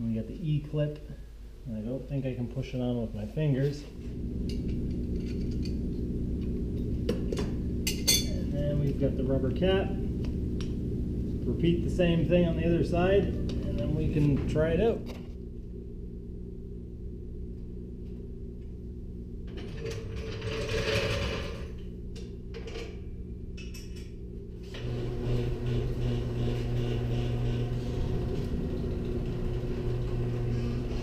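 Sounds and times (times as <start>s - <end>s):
garage door opener humming: 4.0s - 9.4s, 19.2s - 23.5s, 24.1s - 31.0s
floor jack mechanical noise: 19.5s - 21.8s, 24.6s - 31.0s.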